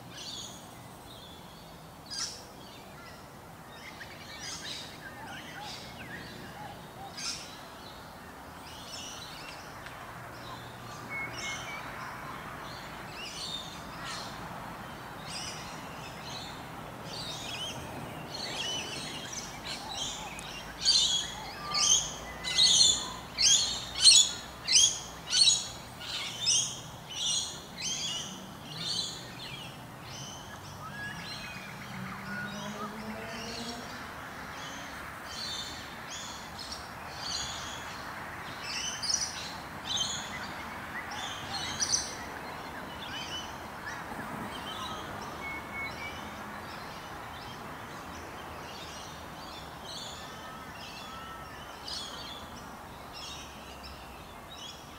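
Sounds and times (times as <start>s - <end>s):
steady background noise: 0.0s - 54.9s.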